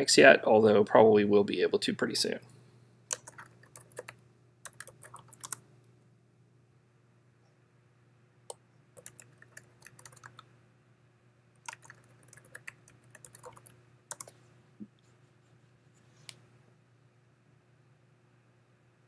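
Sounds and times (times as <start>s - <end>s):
faint low hum: 0.0s - 19.0s
keyboard typing: 3.1s - 5.6s, 9.0s - 10.5s, 11.6s - 14.4s.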